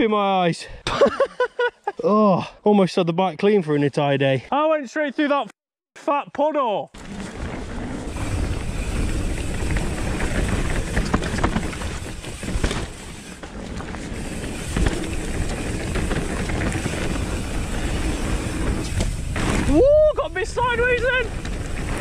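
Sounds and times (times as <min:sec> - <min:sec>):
bike rattling: 0:07.0 - 0:22.0
tyre noise: 0:07.0 - 0:22.0.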